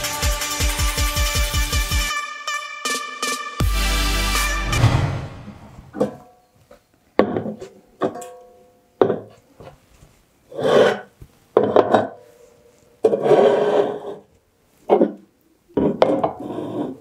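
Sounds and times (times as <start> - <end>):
cans scraping across table: 10.5 - 12.1, 13.0 - 14.3, 15.8 - 17.0.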